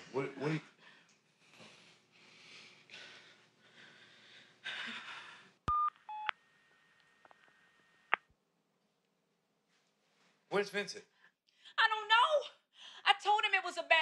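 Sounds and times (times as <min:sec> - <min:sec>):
phone keypad beeps: 0:05.7 - 0:06.4.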